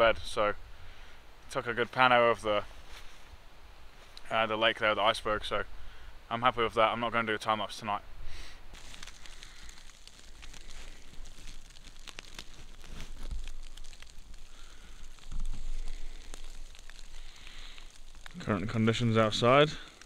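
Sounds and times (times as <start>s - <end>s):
snow pattering on tent fabric: 1.8s - 3.3s, 8.7s - 20.0s.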